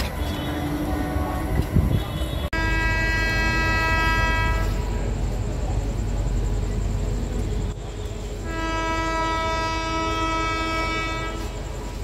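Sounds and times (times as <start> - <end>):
low rumble of train: 0.0 - 12.0
locomotive horn blast: 0.2 - 5.0, 8.0 - 11.7.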